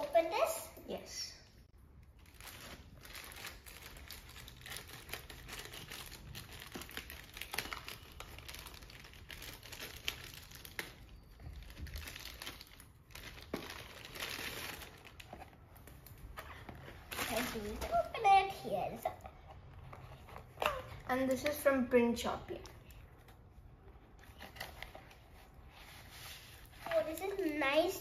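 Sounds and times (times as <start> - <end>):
plastic mailer bag crinkling: 2.2 - 18.2.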